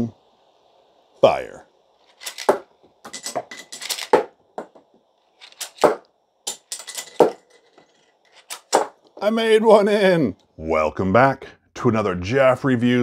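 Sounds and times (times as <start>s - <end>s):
toy disc launcher clicking: 2.1s - 4.3s, 5.4s - 5.9s, 8.3s - 8.9s.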